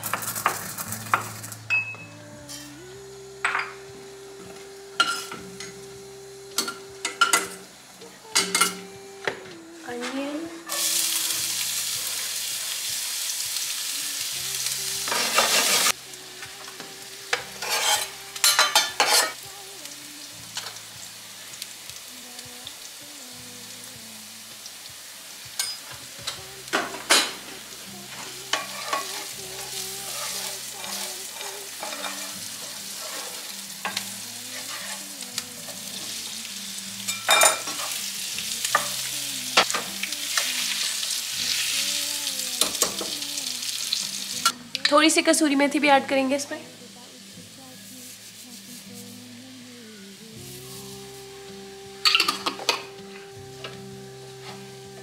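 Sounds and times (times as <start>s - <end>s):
food sizzling in oil: 0.0s - 55.0s
spatula scraping pan: 17.3s - 19.4s, 28.5s - 35.1s.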